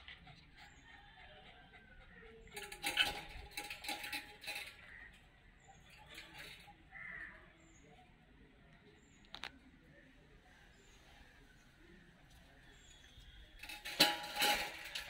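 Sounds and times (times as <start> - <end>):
wire cage rattling: 2.5 - 5.1, 5.8 - 6.7, 13.5 - 15.0.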